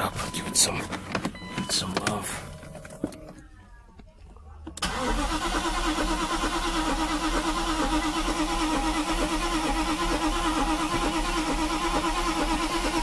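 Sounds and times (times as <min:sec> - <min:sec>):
starter cranking an engine: 0:04.8 - 0:13.0.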